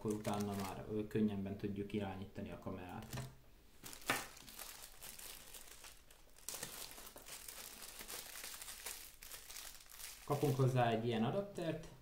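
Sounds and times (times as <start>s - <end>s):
plastic bags crinkling: 0.0s - 0.8s, 3.8s - 10.8s.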